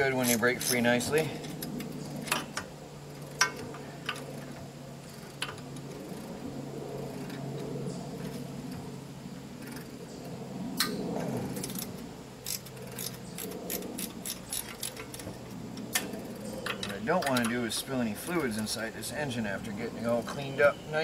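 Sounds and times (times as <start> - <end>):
steady low hum: 0.0 - 21.0
wrench clicking on bolts: 0.2 - 0.8.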